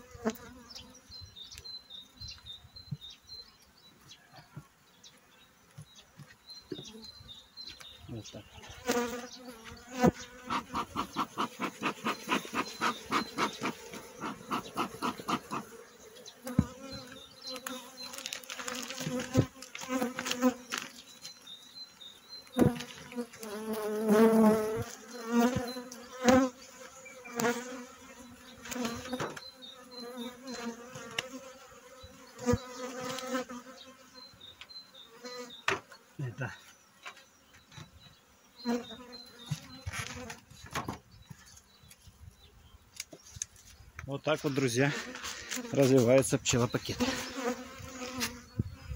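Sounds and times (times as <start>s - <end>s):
bees buzzing: 8.3s - 40.5s, 44.4s - 48.9s
bellows smoker puffing: 10.4s - 15.8s
plastic sheet crinkling: 18.0s - 21.0s.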